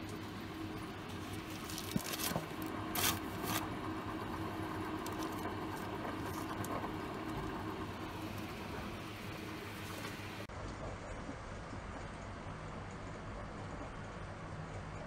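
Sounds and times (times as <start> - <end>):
machine hum: 0.0 - 15.0
scratchy rustles and clicks: 1.1 - 3.8.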